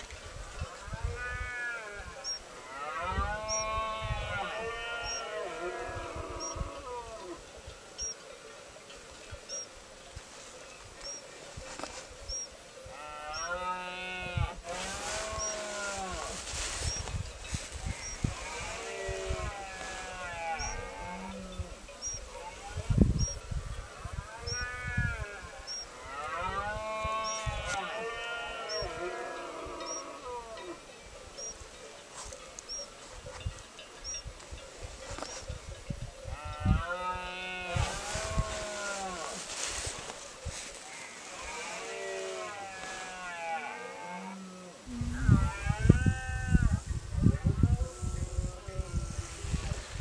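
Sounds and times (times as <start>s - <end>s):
faint high chirp: 9.5s - 9.7s.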